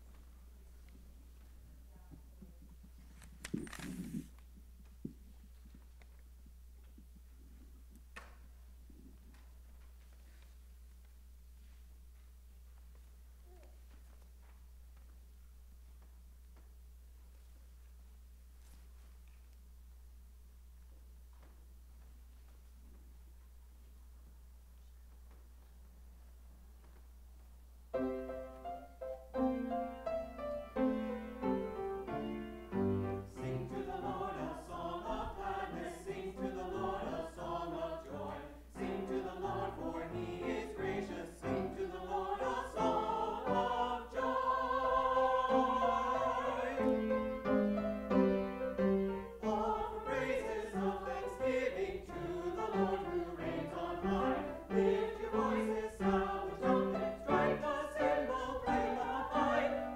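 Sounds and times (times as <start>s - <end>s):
church choir singing: 29.4s - 59.9s.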